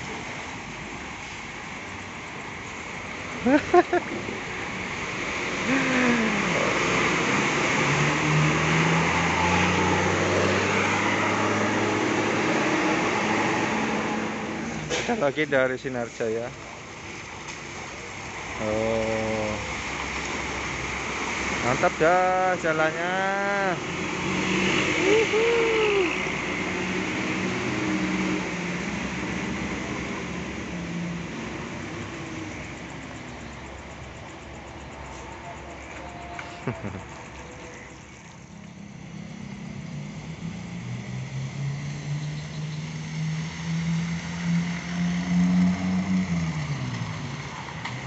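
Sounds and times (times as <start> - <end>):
bus engine running: 0.0 - 7.6, 25.0 - 26.5, 35.8 - 42.2
tyres splashing through mud: 2.9 - 15.7, 16.4 - 31.9.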